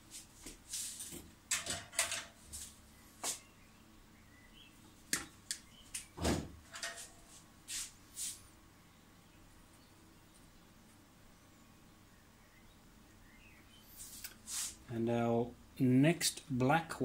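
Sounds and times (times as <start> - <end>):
hands handling wires: 1.0 - 2.8, 5.1 - 7.4.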